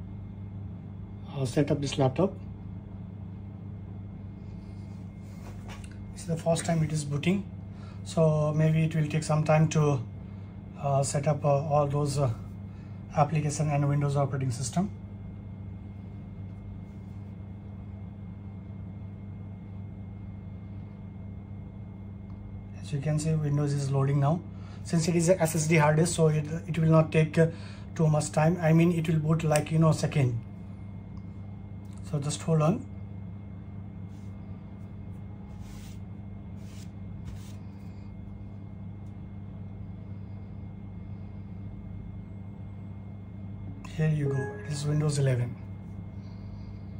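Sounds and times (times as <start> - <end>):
steady low hum: 0.0 - 46.9
soft rustles: 4.7 - 6.0, 35.1 - 38.1
faint thin high tone: 44.2 - 45.5.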